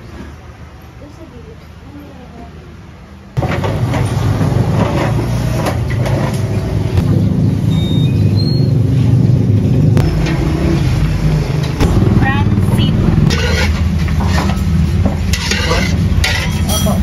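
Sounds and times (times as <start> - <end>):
traffic engine rumble: 0.0 - 17.0.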